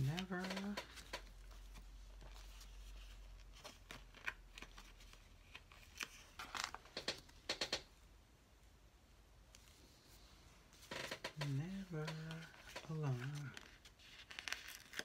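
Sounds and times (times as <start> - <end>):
paper crinkling: 0.0 - 7.2, 10.8 - 15.0.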